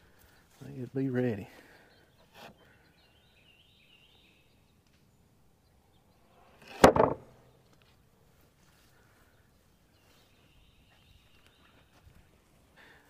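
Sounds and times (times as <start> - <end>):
faint bird chirps: 0.0 - 6.6, 8.9 - 12.3.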